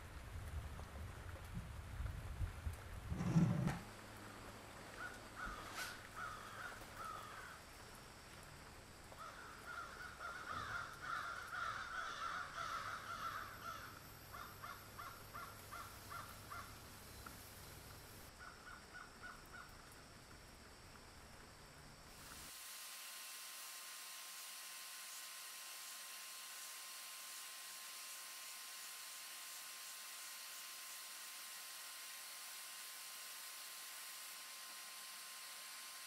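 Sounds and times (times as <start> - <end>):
crows cawing faintly: 4.9 - 7.8, 9.1 - 16.9, 18.3 - 19.8.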